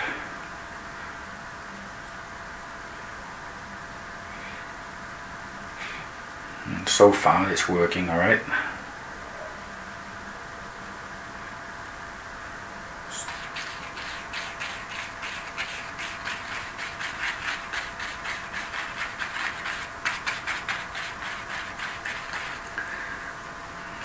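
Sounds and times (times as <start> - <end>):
paintbrush scrubbing canvas: 13.2 - 22.8.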